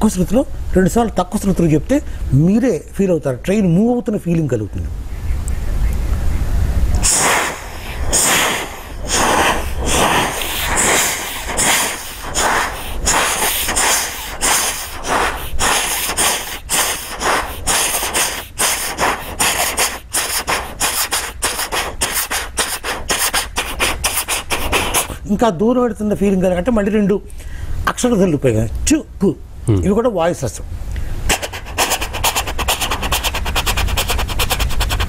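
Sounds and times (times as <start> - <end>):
person imitating a train: 7.0 - 25.1.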